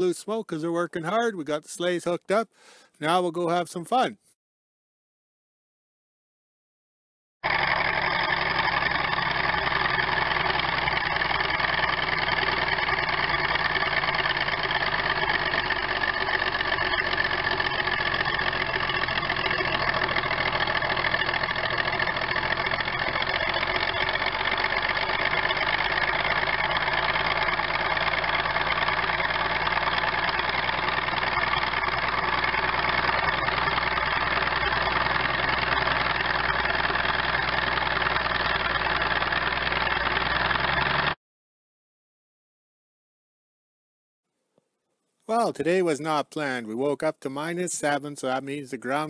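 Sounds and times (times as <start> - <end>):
diesel engine running hard: 7.4 - 41.2.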